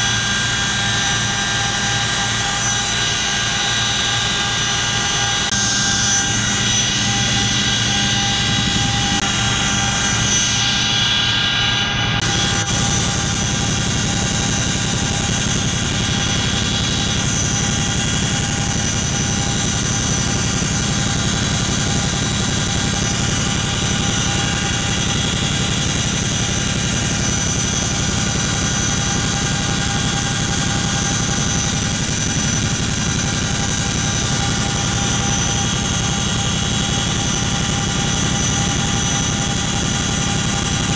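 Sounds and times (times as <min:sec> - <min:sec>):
helicopter engines whining: 0:00.0 - 0:40.9
low helicopter rotor beat: 0:00.0 - 0:40.9.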